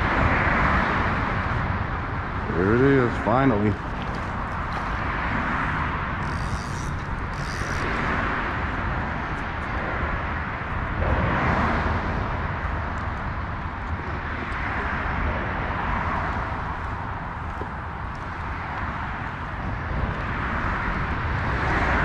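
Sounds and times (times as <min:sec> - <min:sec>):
highway traffic drone: 0:00.0 - 0:22.0.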